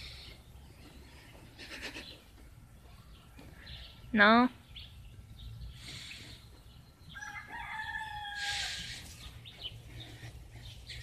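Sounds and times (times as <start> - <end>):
rooster crowing: 7.1 - 9.0.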